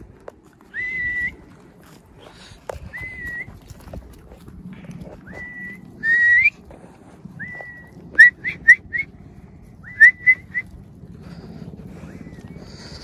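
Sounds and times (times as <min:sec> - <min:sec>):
person whistling: 0:00.7 - 0:01.4, 0:02.9 - 0:03.5, 0:05.2 - 0:06.6, 0:07.4 - 0:09.1, 0:09.8 - 0:10.7.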